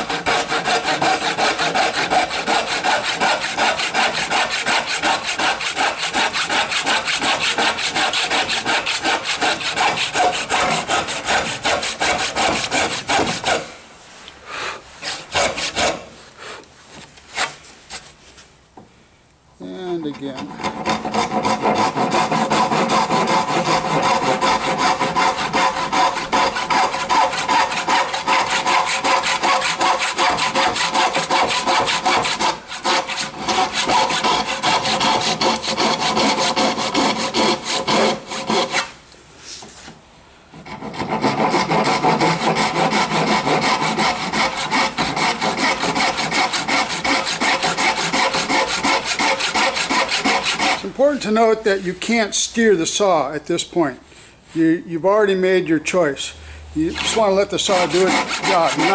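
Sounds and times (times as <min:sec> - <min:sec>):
handsaw rasping through wood: 0:00.0 - 0:13.7, 0:15.0 - 0:16.1, 0:20.0 - 0:39.0, 0:40.6 - 0:51.4, 0:56.8 - 0:58.9.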